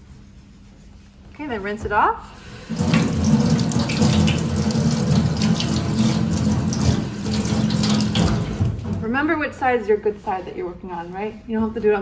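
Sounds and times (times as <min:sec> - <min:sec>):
tap water running onto metal plate: 0:02.4 - 0:09.0
water splashing into sink: 0:02.4 - 0:09.0.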